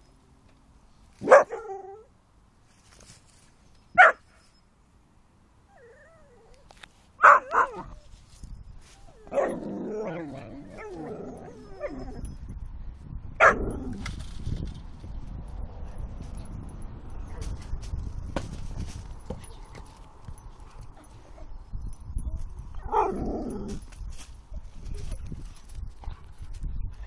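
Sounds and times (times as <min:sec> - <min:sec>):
dogs barking: 0:01.2 - 0:01.8, 0:04.0 - 0:04.2, 0:07.2 - 0:08.0, 0:13.4 - 0:13.8
dogs yelping: 0:07.2 - 0:08.0, 0:09.0 - 0:12.3.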